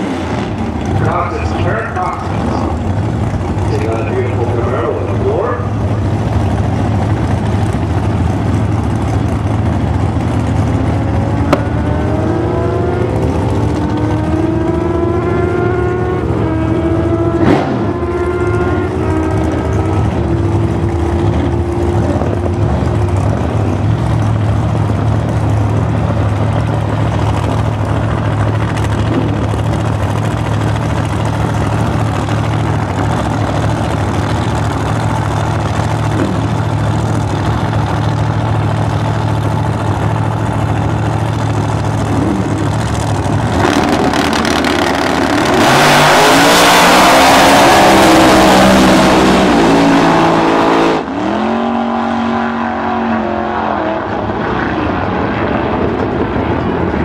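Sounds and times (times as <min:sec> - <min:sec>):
car engines idling: 0:00.0 - 0:57.0
cars launching at full throttle: 0:16.4 - 0:21.5, 0:42.0 - 0:56.3.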